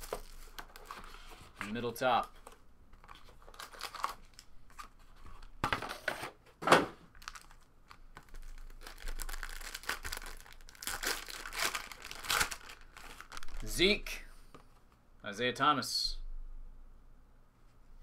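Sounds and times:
plastic shrink wrap tearing and crinkling: 0.0 - 1.3, 3.0 - 4.5, 7.1 - 13.8.

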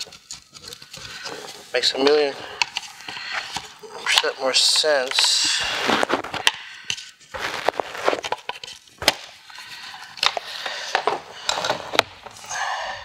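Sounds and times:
plastic scraping: 0.0 - 12.5
plastic clicks cracks and creaks: 2.0 - 5.4, 10.1 - 12.4.

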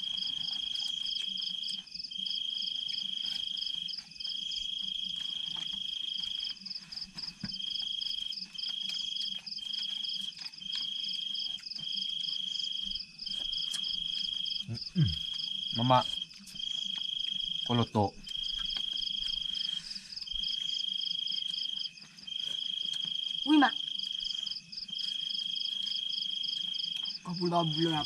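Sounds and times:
cricket trilling: 0.0 - 28.0
insect pulsing chirr: 0.0 - 28.0.

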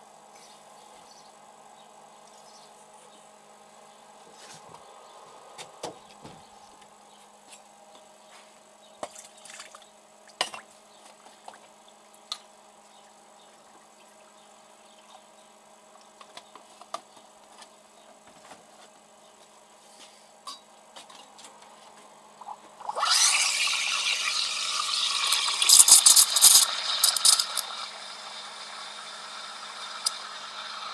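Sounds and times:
faint steady hum: 0.0 - 30.9
espresso dripping into cups: 22.9 - 30.9.

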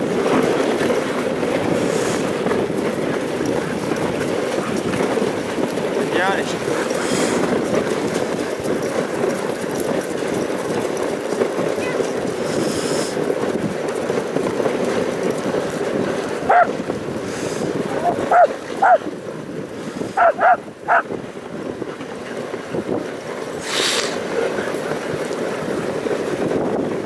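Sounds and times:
sled running on snow: 0.0 - 27.0
huskies yelping: 16.5 - 16.8, 18.0 - 19.0, 20.2 - 21.1.

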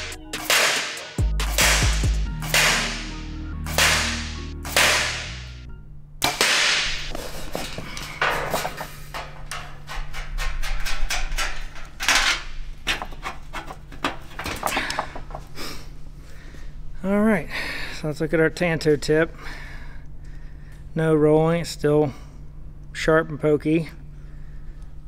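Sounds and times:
sharp hits: 0.0 - 7.1
arrow scraping through steel plate: 3.7 - 5.4.

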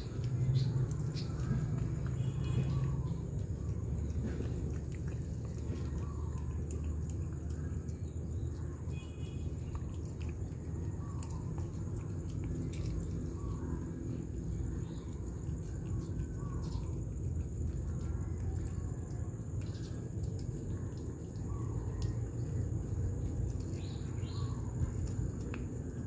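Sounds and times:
cat licking: 0.0 - 8.0, 9.4 - 13.4
low background rumble: 0.0 - 26.0.

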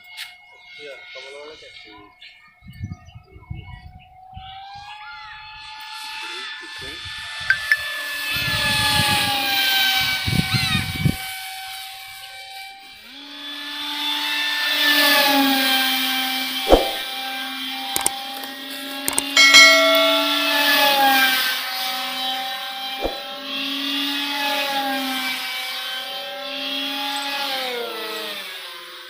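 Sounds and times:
sharp clicks: 18.0 - 18.5, 19.1 - 19.4.

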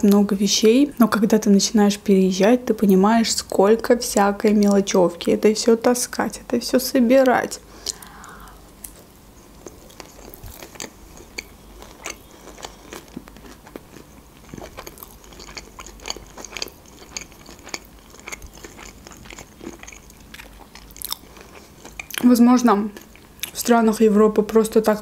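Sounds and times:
person chewing food: 7.8 - 22.2, 23.0 - 23.6.

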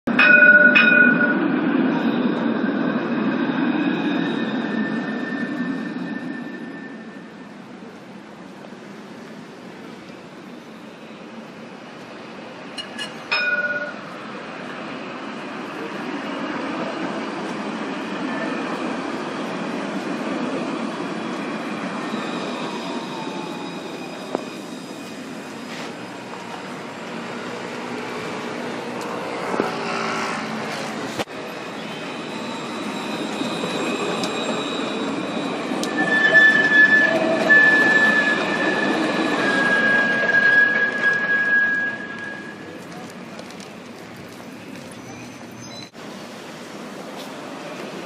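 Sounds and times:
tram warning bell ringing: 0.1 - 8.1, 12.7 - 14.7, 15.8 - 29.5, 31.4 - 42.9
tram rumbling on rails: 0.1 - 48.0
wheel squeal: 3.4 - 7.5, 21.4 - 26.6, 31.7 - 42.8.

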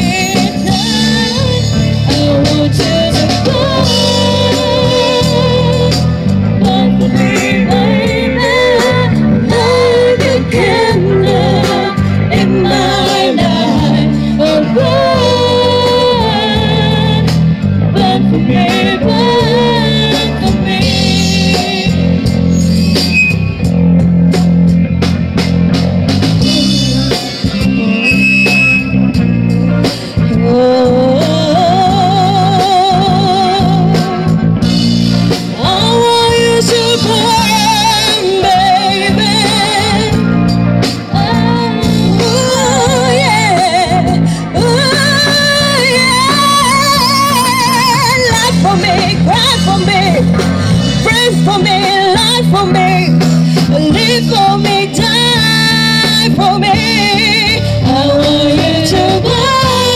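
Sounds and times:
person singing: 0.0 - 22.2, 30.2 - 34.4, 35.5 - 40.3, 51.0 - 59.9
drum kit: 0.0 - 59.9
electric guitars: 0.0 - 59.9
keyboard: 0.0 - 59.9.

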